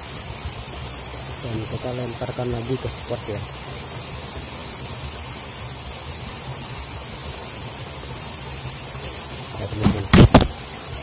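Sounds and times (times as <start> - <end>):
fishing tackle knocking on microphone: 9.8 - 10.5.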